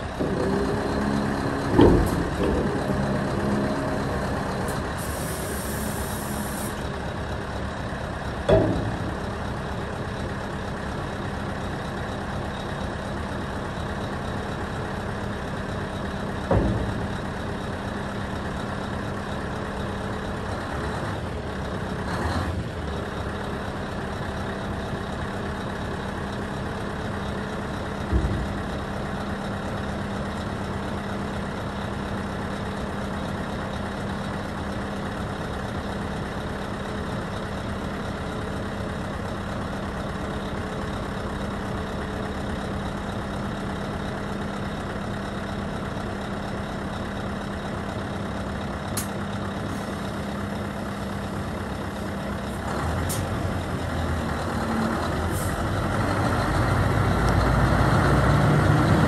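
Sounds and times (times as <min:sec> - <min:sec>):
diesel truck engine idling: 0:00.0 - 0:59.0
heavy thump: 0:01.7 - 0:02.8, 0:08.5 - 0:09.2, 0:16.5 - 0:17.3, 0:28.1 - 0:28.7.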